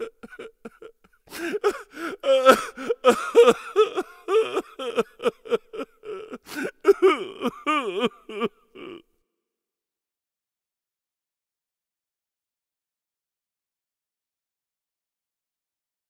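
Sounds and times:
person wailing: 0.0 - 9.0.

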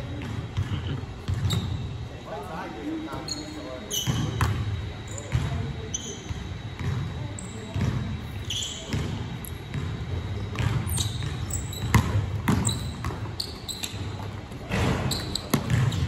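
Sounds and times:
sneaker squeaks: 0.0 - 16.0
basketball bouncing on wood floor: 0.1 - 1.8, 6.8 - 8.1, 8.9 - 16.0.

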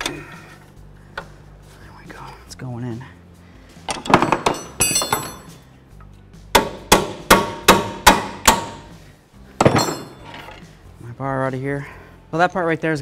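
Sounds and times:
hammer striking metal bolt: 3.9 - 5.5, 6.6 - 8.9, 9.6 - 10.3.

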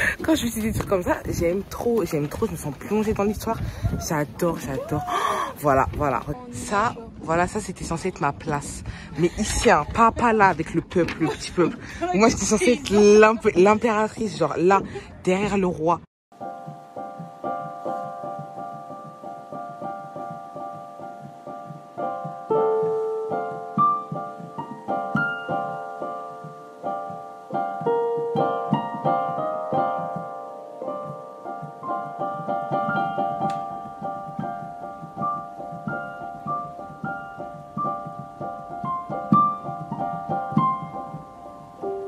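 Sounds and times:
piano music: 16.3 - 42.0.

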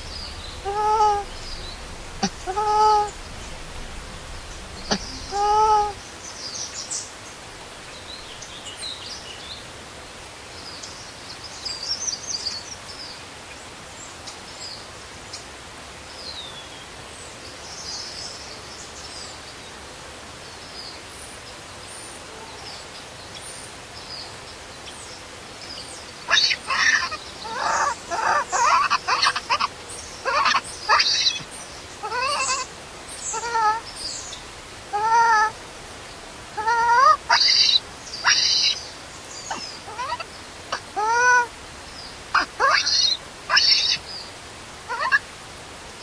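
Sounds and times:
baby monkey squealing and crying: 0.0 - 1.6, 2.2 - 3.2, 4.8 - 6.0, 26.3 - 33.9, 34.9 - 35.6, 36.6 - 38.8, 39.5 - 41.5, 42.4 - 44.0, 44.9 - 45.2
small birds chirping: 0.0 - 9.7, 22.7 - 45.4.

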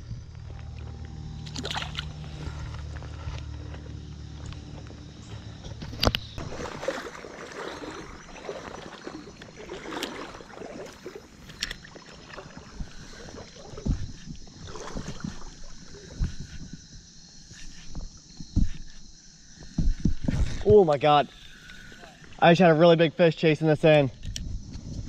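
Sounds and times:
water sloshing and splashing: 0.3 - 3.7, 5.3 - 22.6.

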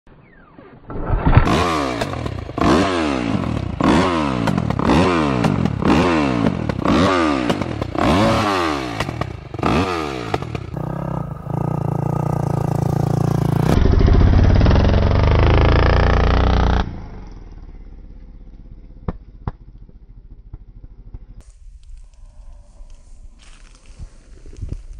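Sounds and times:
motorcycle engine revving: 1.0 - 22.1.

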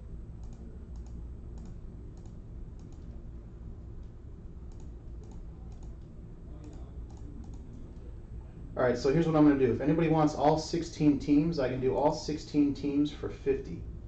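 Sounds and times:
low background hum: 0.0 - 14.0
typing on computer keyboard: 4.7 - 6.0.

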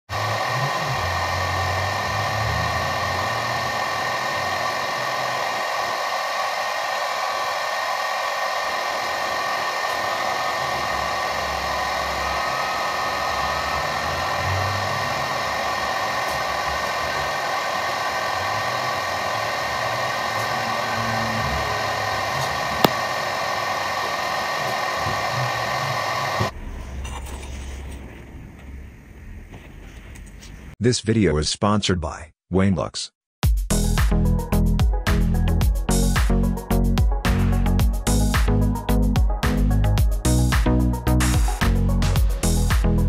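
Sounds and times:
laser engraver whirring: 0.1 - 26.6
low hum: 0.1 - 29.6.

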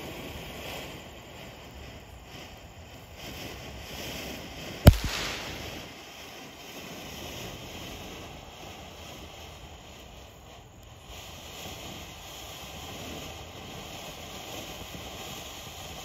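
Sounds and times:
firework fountain hissing: 0.0 - 16.0
loud firework bang: 4.9 - 6.1.

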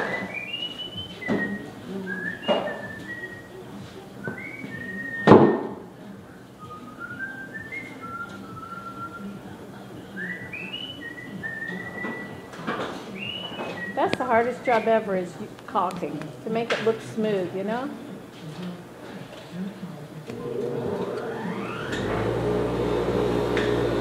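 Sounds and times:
person whistling a tune: 0.0 - 3.6, 4.2 - 5.6, 6.6 - 9.3.

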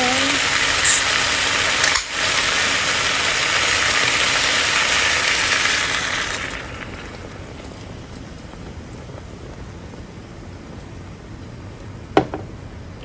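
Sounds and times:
soda pouring: 0.0 - 9.8
chicken sizzling in hot oil: 0.0 - 10.4.

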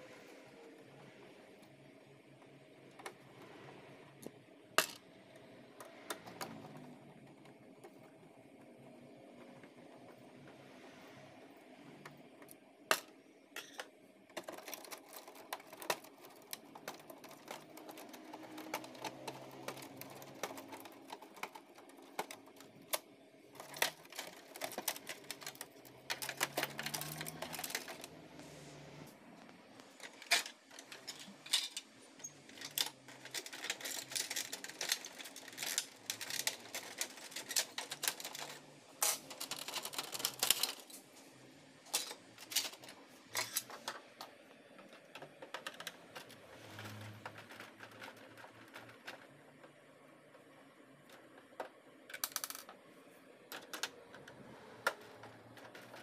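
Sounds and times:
screwdriver and plastic parts rattling: 12.4 - 28.4, 29.8 - 41.0, 41.9 - 50.4, 51.0 - 52.8, 53.5 - 56.0.

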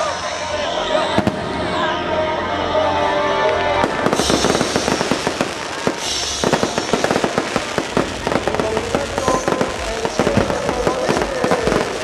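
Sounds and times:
fireworks bangs and crackles: 1.1 - 1.8, 3.6 - 12.0.

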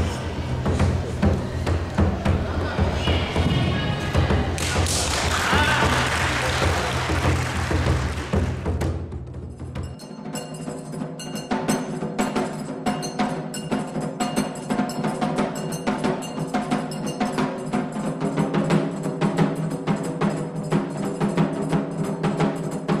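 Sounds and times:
taiko drumming: 0.0 - 10.0.

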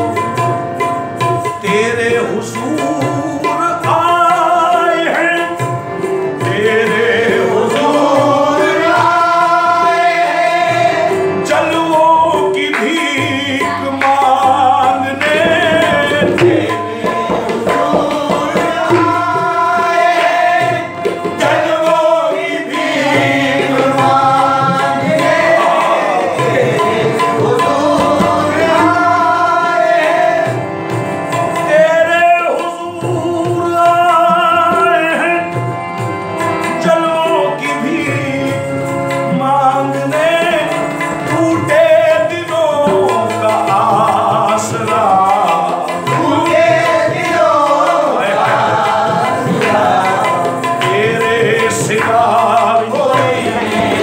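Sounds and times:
harmonium: 0.0 - 54.0
tabla drumming: 0.0 - 54.0
man singing melismatic lines: 1.6 - 5.7, 11.4 - 29.6, 31.6 - 35.6, 36.8 - 49.0, 49.7 - 54.0.

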